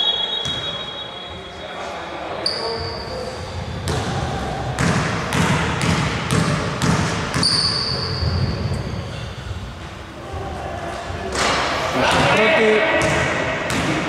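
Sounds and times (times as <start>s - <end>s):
high whistle-like tone: 0.0s - 1.8s
basketball bouncing on wooden floor: 4.8s - 7.6s.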